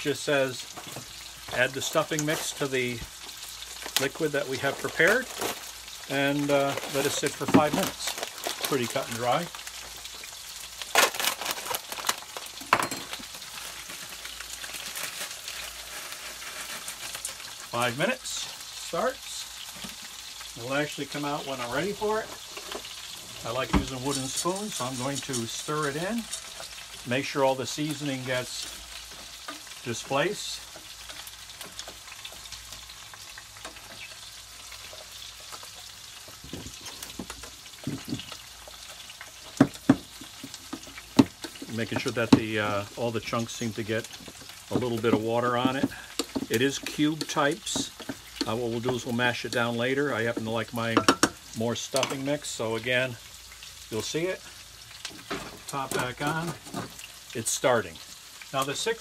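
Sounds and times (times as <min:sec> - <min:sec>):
meat sizzling in a frying pan: 0:00.0 - 0:59.0
wooden spoon knocking a pot: 0:44.3 - 0:46.6, 0:50.9 - 0:51.4.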